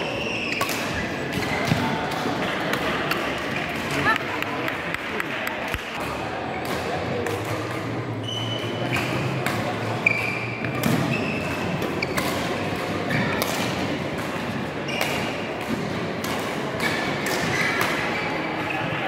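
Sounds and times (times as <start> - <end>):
shoe squeaks on court floor: 0.0 - 0.6, 8.2 - 9.3, 10.0 - 12.2
racket striking shuttlecock: 10.6 - 18.1.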